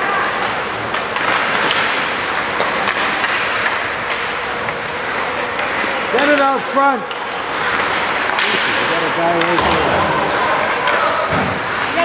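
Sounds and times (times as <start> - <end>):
hockey sticks and puck clicking: 0.2 - 12.0
skates hissing on ice: 1.4 - 4.0, 7.4 - 8.9.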